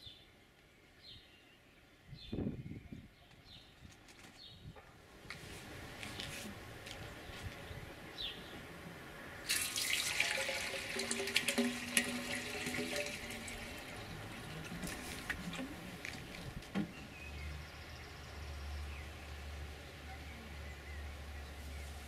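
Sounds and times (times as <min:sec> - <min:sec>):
water pouring into steel tank: 0:09.4 - 0:16.3.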